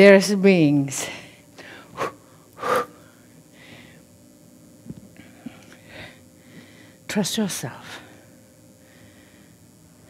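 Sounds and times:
person breathing sharply: 1.6s - 4.0s.

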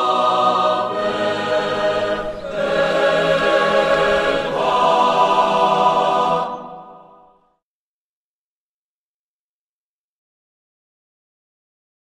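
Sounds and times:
choir singing sustained chords: 0.0s - 7.6s.

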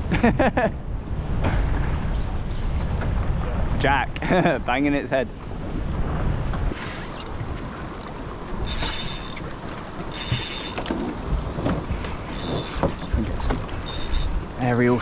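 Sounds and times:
wind: 0.0s - 15.0s
water noise: 0.8s - 15.0s
fishing reel drag buzzing: 8.0s - 10.9s, 12.2s - 14.6s.

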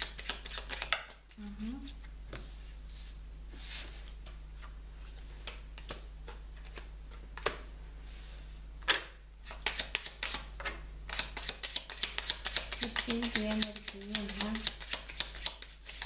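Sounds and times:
cards clicking while shuffled: 0.0s - 1.2s, 11.1s - 16.0s
low steady hum: 0.0s - 16.0s.

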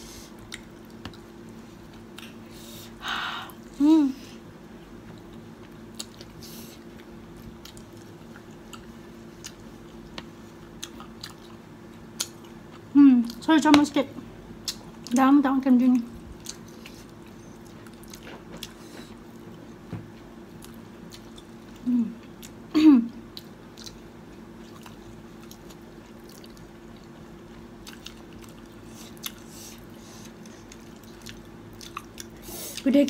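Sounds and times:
low steady hum: 0.0s - 33.0s
chewing crunchy food: 0.3s - 2.5s, 5.0s - 13.5s, 16.1s - 22.6s, 23.3s - 32.9s.

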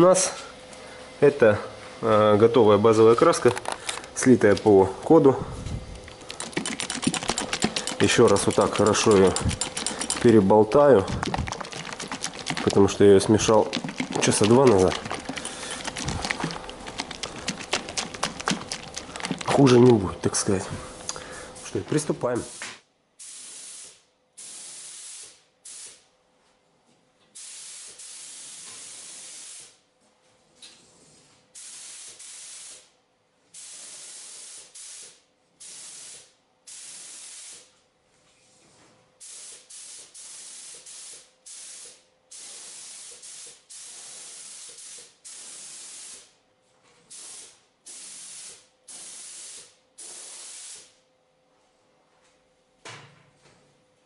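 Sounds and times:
paint spray gun hissing: 39.2s - 46.3s, 47.1s - 50.9s.

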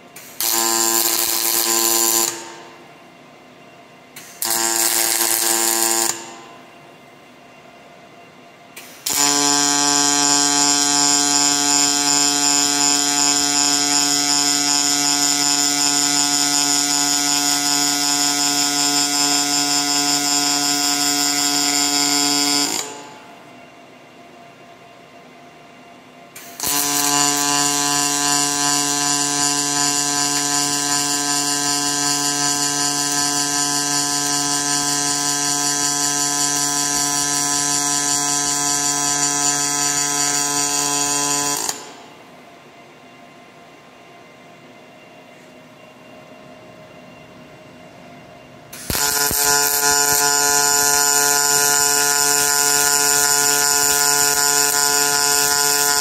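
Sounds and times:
welding arc buzzing: 0.2s - 2.8s, 4.2s - 6.6s, 8.8s - 23.2s, 26.4s - 42.1s, 48.7s - 56.0s.

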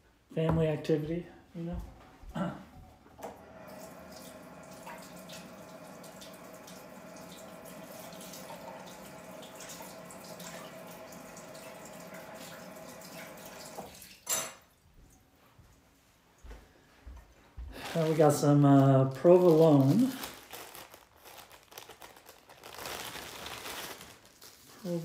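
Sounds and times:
kitchen tap running: 3.2s - 14.6s.

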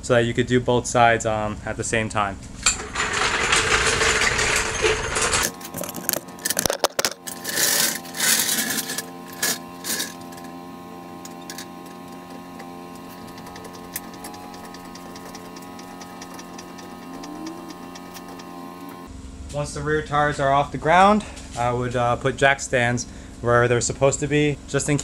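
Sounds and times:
steady hum of tones: 1.3s - 19.2s
floor jack pumping clicks: 2.6s - 19.1s
loud rustle: 2.8s - 10.6s.

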